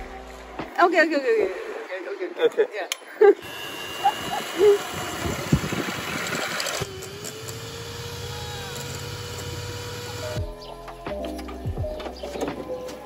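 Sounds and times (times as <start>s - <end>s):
electric hand mixer whipping: 3.4s - 10.4s.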